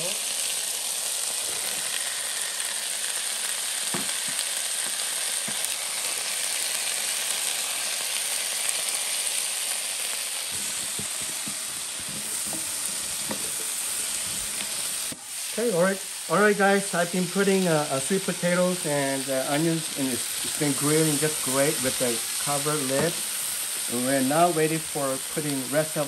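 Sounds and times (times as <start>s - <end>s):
vegetables sizzling in a pan: 0.0s - 26.0s
wooden spatula scraping a pan: 10.5s - 15.2s, 19.6s - 24.0s.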